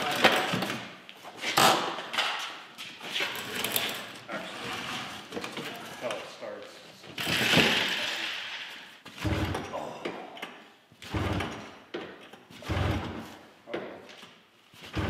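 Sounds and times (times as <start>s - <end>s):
recoil rope pull-start: 12.6s - 13.3s.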